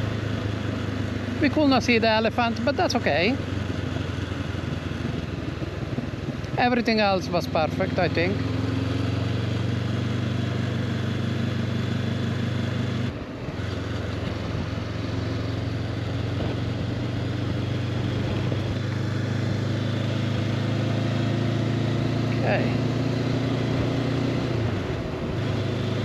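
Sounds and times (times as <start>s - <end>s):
motorcycle engine running: 0.0s - 26.0s
wind rush: 16.3s - 19.7s.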